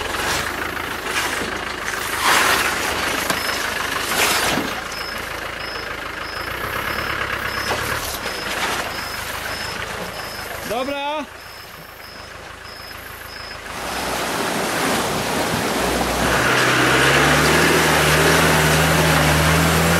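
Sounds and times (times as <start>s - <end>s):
engine low hum: 0.0s - 19.9s
short high electronic beeps: 4.9s - 10.8s
loud rushes of noise: 13.7s - 19.9s.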